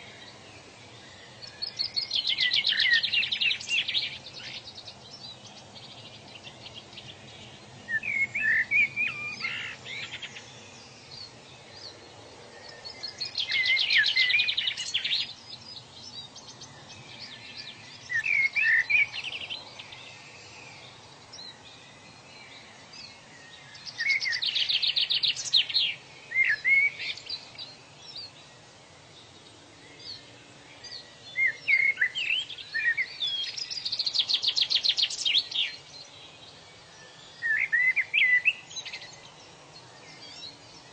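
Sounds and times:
birds trilling and chirping: 0:00.0 - 0:40.9
low background hiss: 0:00.0 - 0:40.9.

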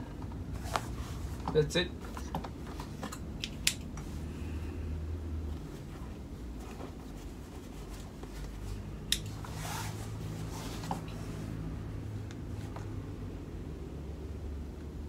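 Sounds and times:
low steady hum: 0:00.0 - 0:15.0
sharp click: 0:09.1 - 0:09.3.

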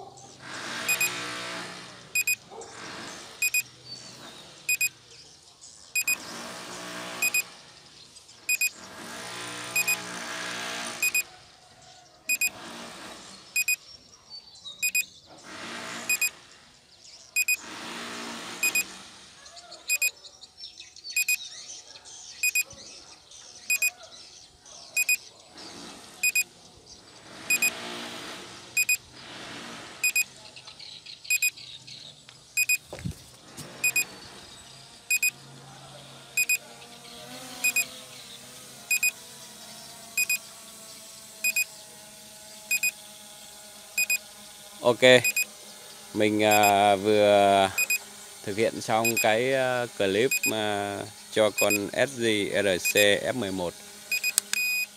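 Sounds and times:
short high electronic beeps: 0:00.9 - 0:01.1, 0:02.2 - 0:02.4, 0:03.4 - 0:03.6, 0:04.7 - 0:04.9, 0:06.0 - 0:06.2, 0:07.2 - 0:07.4, 0:08.5 - 0:08.8, 0:09.8 - 0:10.0, 0:11.0 - 0:11.2, 0:12.3 - 0:12.5, 0:13.6 - 0:13.8, 0:14.8 - 0:15.1, 0:16.1 - 0:16.3, 0:17.4 - 0:17.6, 0:18.6 - 0:18.8, 0:19.9 - 0:20.1, 0:22.4 - 0:22.6, 0:23.7 - 0:23.9, 0:25.0 - 0:25.2, 0:26.2 - 0:26.4, 0:27.5 - 0:27.7, 0:28.8 - 0:29.0, 0:30.0 - 0:30.2, 0:31.3 - 0:31.5, 0:32.6 - 0:32.8, 0:33.8 - 0:34.1, 0:35.1 - 0:35.3, 0:45.2 - 0:45.5, 0:47.8 - 0:48.0, 0:54.1 - 0:54.9.

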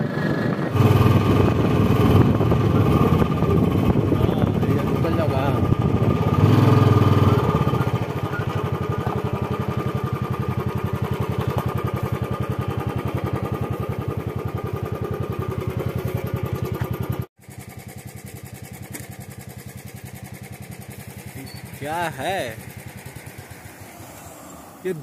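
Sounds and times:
motorcycle engine thudding: 0:00.8 - 0:17.3.

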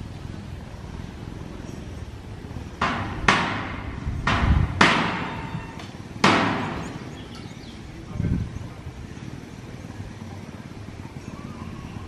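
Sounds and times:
sharp ringing bangs: 0:02.8 - 0:07.4.

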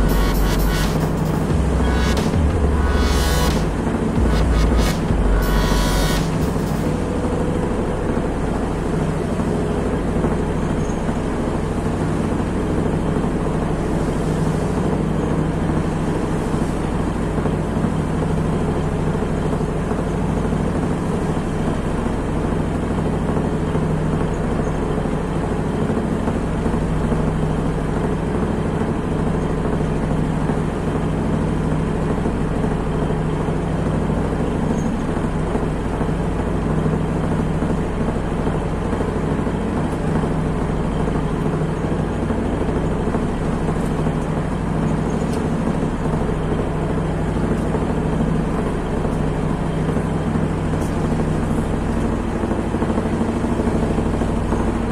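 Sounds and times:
ship engine drone: 0:00.0 - 0:54.9.

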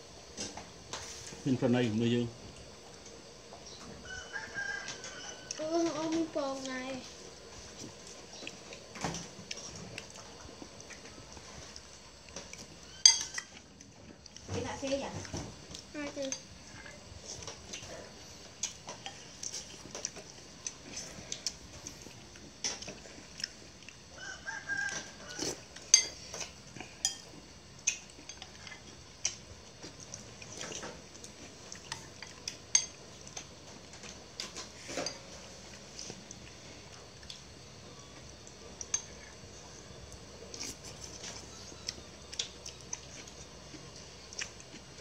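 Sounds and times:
rooster crowing: 0:04.0 - 0:05.7, 0:24.1 - 0:25.7.

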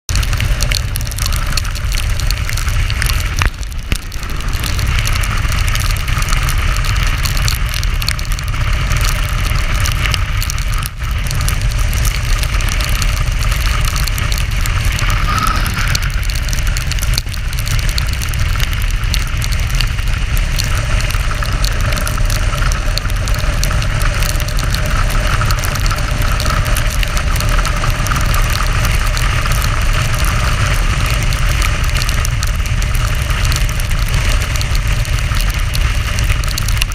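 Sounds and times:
wind rushing: 0:02.7 - 0:07.4, 0:14.5 - 0:17.1.

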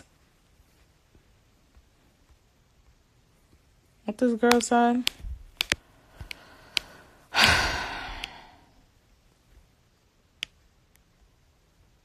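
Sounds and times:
small clicks: 0:01.7 - 0:08.5, 0:10.3 - 0:11.4
person sighing loudly: 0:07.3 - 0:08.8.

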